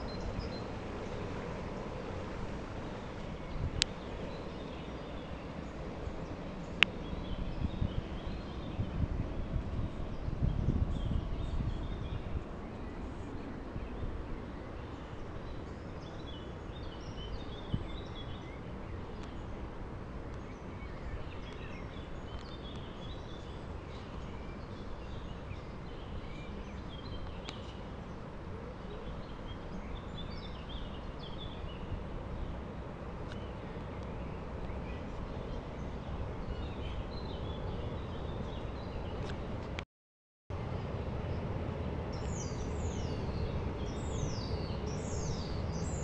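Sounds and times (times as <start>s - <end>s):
songbirds chirping: 0.0s - 39.8s, 40.6s - 46.0s
low outdoor rumble: 40.5s - 46.0s.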